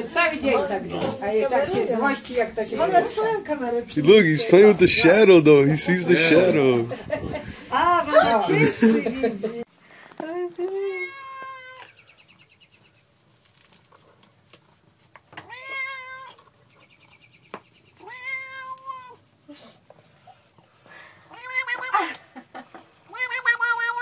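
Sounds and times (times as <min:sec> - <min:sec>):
cat meowing: 0:10.8 - 0:11.9, 0:15.4 - 0:16.5, 0:18.0 - 0:19.2, 0:21.3 - 0:22.2, 0:22.9 - 0:24.0.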